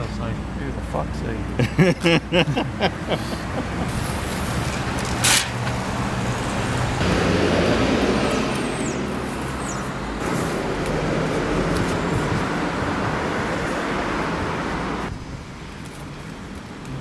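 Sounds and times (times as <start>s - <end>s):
passing vehicles rumbling: 0.0s - 17.0s.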